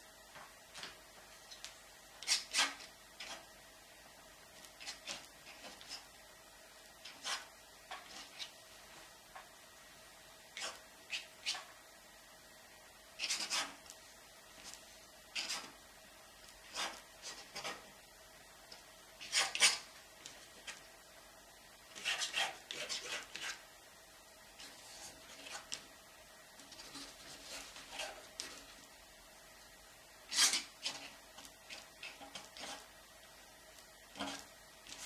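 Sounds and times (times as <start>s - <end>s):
bristle brush scraping paint: 7.1s - 8.5s, 21.9s - 23.6s, 26.7s - 28.6s, 30.3s - 32.9s.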